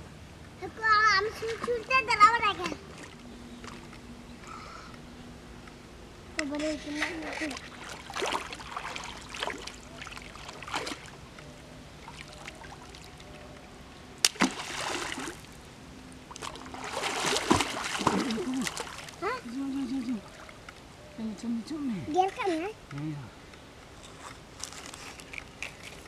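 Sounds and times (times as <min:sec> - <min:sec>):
water splashing: 0:07.1 - 0:11.3, 0:12.0 - 0:20.8
sharp slap on water: 0:14.2 - 0:15.3
voices calling out: 0:17.9 - 0:23.5.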